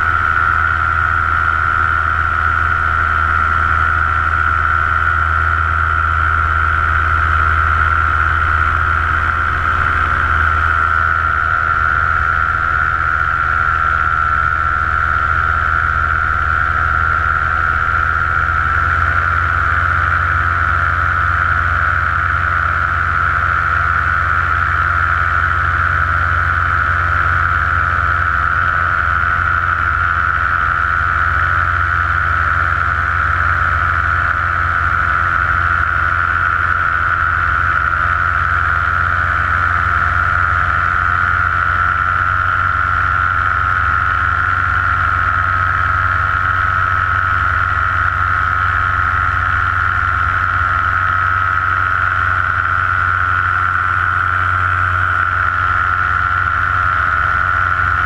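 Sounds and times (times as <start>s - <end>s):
paramotor engine and propeller drone: 0.0s - 58.0s.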